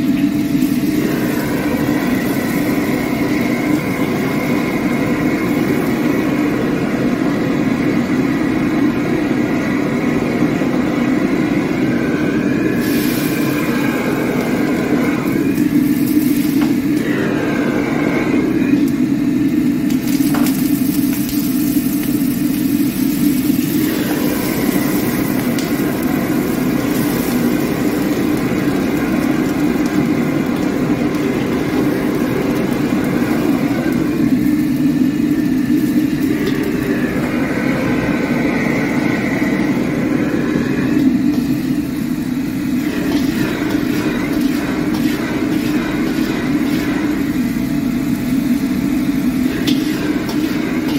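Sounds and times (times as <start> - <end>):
food sizzling: 0.0 - 50.9
wok burner roaring: 0.0 - 50.9
metal ladle scraping in wok: 42.7 - 47.6, 49.4 - 50.9.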